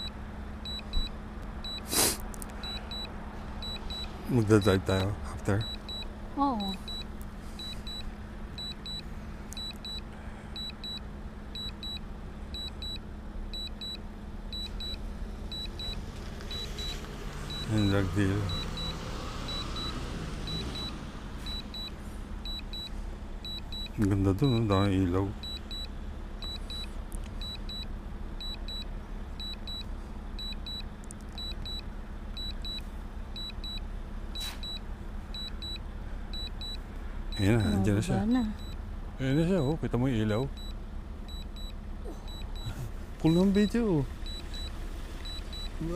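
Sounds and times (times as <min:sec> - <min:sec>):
high beeps from remote controller: 0:00.0 - 0:01.9, 0:02.6 - 0:04.1, 0:05.6 - 0:09.0, 0:09.6 - 0:11.0, 0:11.6 - 0:12.0, 0:12.6 - 0:13.0, 0:13.6 - 0:24.6, 0:25.4 - 0:31.8, 0:32.4 - 0:32.8, 0:33.4 - 0:33.8, 0:34.4 - 0:34.8, 0:35.4 - 0:35.8, 0:36.4 - 0:38.8, 0:40.6 - 0:43.6, 0:44.2 - 0:45.9
low hum and rumble: 0:00.0 - 0:45.9.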